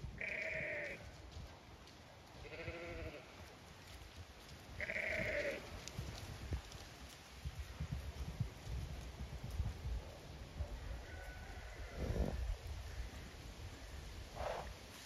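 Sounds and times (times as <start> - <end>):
sheep bleating: 0.2 - 1.0, 2.4 - 3.3, 4.8 - 5.6.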